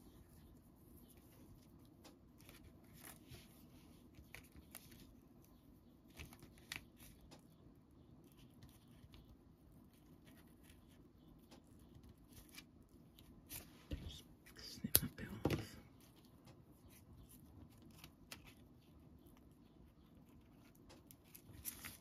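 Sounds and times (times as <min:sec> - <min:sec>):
paper and string rustling: 0:00.0 - 0:07.4, 0:20.0 - 0:22.0
low steady hum: 0:00.0 - 0:22.0.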